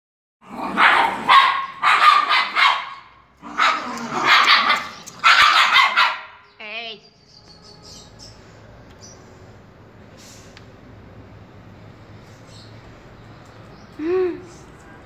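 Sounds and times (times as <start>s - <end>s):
dogs growling and barking: 0.4s - 6.4s.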